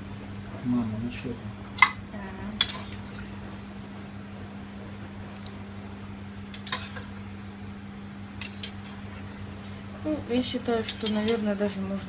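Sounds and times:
steady low hum: 0.0s - 12.0s
metal spoon clinking on pot: 10.8s - 11.4s.

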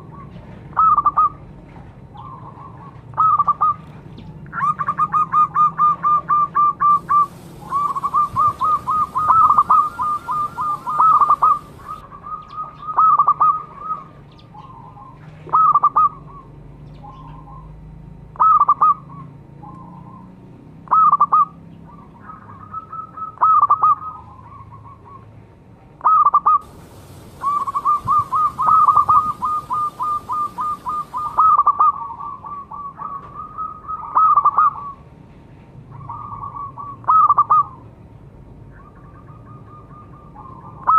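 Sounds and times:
dove cooing in staccato bursts: 4.6s - 14.0s, 26.2s - 34.9s.

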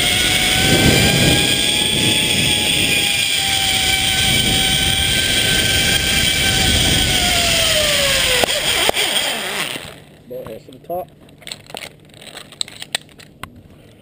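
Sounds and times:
wind rushing: 0.0s - 8.8s
zipline pulleys whining on cable: 0.0s - 10.2s.

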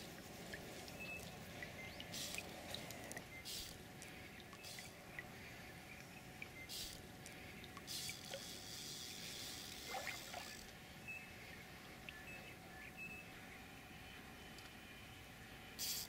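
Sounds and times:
fish splashing in water: 7.9s - 10.7s.

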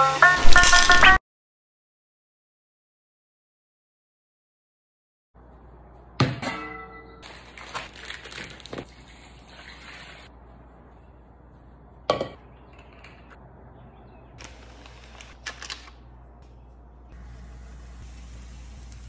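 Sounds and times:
metal pot clanging on countertop: 6.2s - 7.2s.

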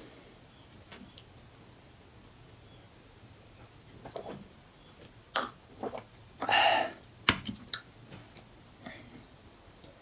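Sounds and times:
breathy exhale: 6.4s - 7.0s.

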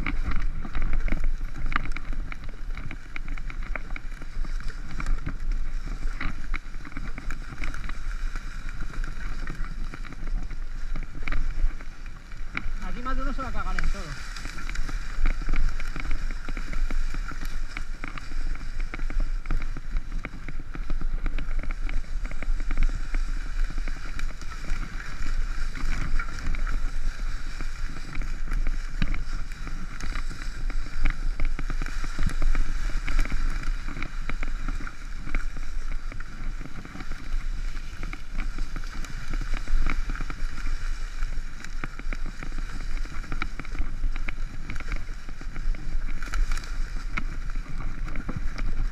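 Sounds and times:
tyres rushing on dirt: 0.0s - 18.3s
bike rattles and knocks: 0.0s - 48.9s.

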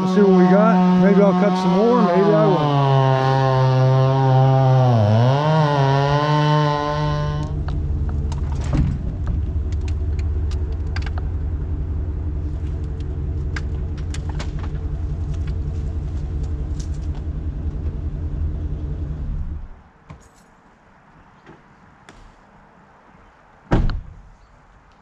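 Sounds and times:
engine idling: 7.2s - 19.7s.

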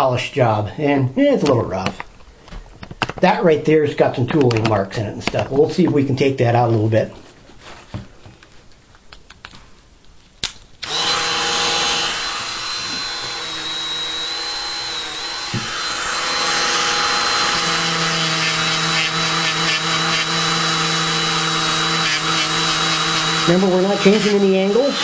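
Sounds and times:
rotary tool whining: 10.8s - 25.0s.

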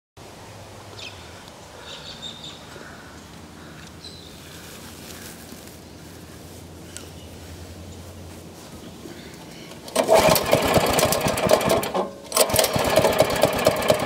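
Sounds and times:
outdoor background noise: 0.2s - 14.0s
birds chirping: 0.9s - 9.9s.

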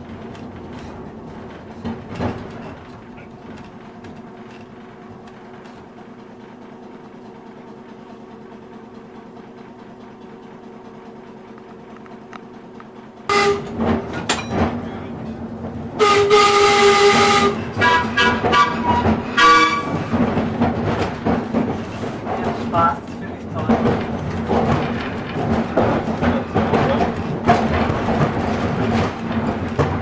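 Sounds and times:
electric streetcar humming: 0.0s - 30.0s
streetcar warning signal: 13.3s - 14.2s, 16.0s - 20.1s.

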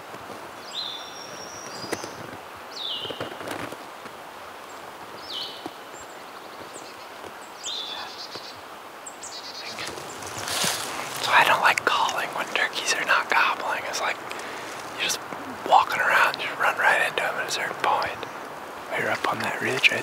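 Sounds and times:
wind through trees: 0.0s - 20.0s
light rustles: 9.6s - 12.4s.

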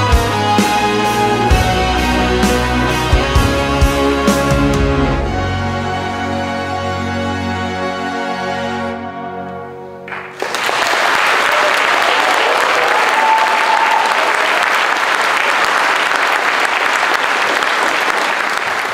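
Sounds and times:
music chord: 0.0s - 10.4s
audience applause: 10.1s - 18.9s.

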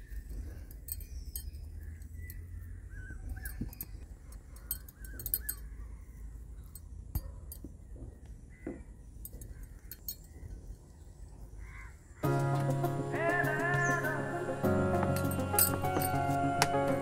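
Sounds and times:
metal bangles clinking: 0.0s - 2.6s, 3.3s - 5.8s, 9.2s - 10.8s, 15.2s - 16.4s.

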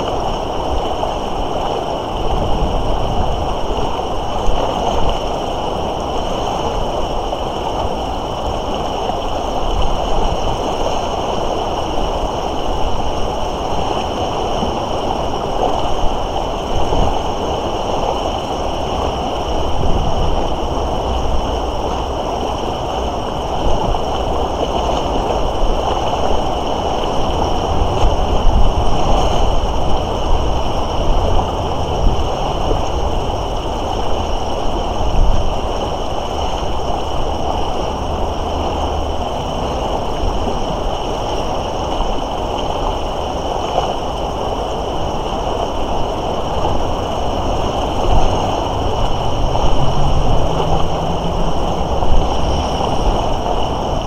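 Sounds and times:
river rushing: 0.0s - 54.0s
low rumble: 46.9s - 54.0s.

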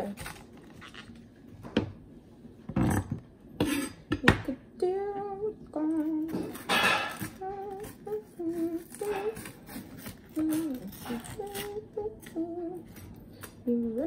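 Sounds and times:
woman humming: 7.2s - 9.6s, 10.3s - 12.9s.

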